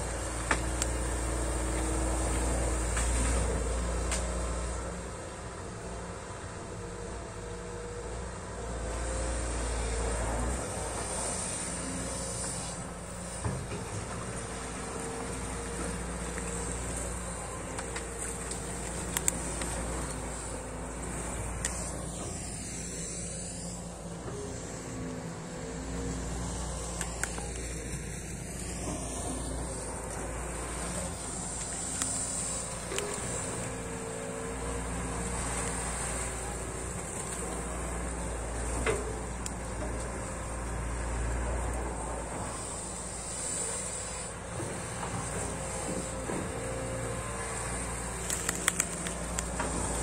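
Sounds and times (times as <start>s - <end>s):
excavator diesel engine running: 0.0s - 50.0s.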